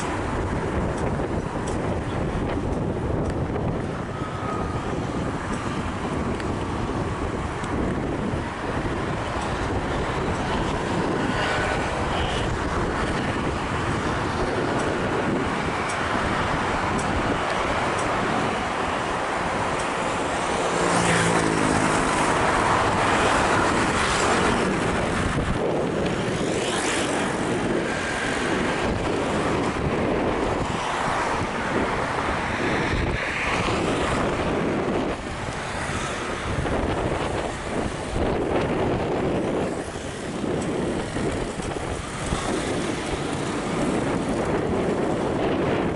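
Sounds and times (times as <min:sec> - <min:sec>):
cars and scooters passing: 0:00.0 - 0:45.9
passing engine: 0:00.0 - 0:45.9.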